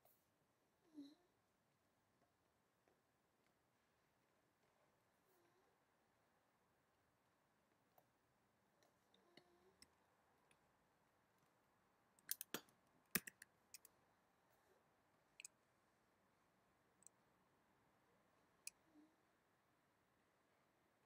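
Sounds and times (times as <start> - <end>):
computer mouse clicks: 12.2 - 13.9.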